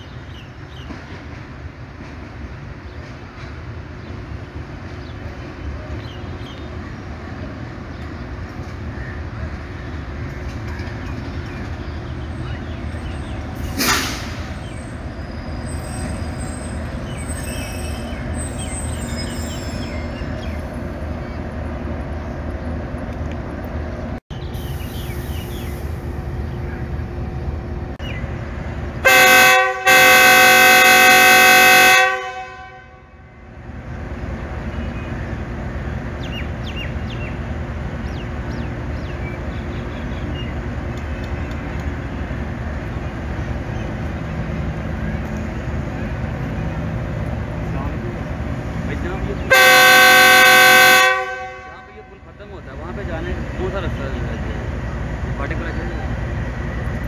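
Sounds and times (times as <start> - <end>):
locomotive rumbling: 0.0 - 57.0
locomotive horn: 29.0 - 33.3, 49.4 - 52.3.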